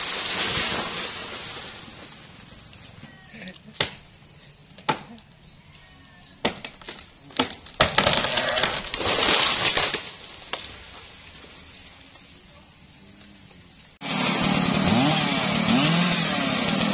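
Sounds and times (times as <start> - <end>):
crash of branches and leaves: 0.0 - 3.2, 6.4 - 12.5
tree limb cracking: 6.4 - 11.2.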